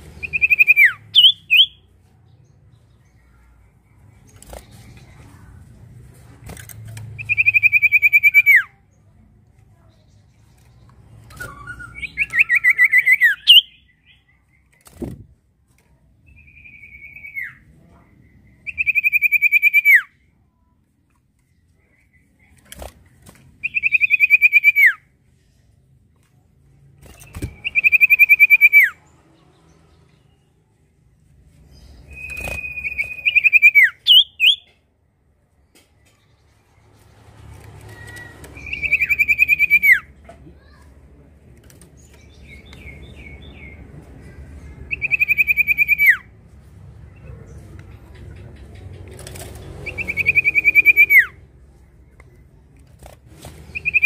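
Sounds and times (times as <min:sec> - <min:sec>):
bird singing fast trills: 0:00.2 - 0:01.9, 0:11.3 - 0:14.3, 0:31.9 - 0:34.7.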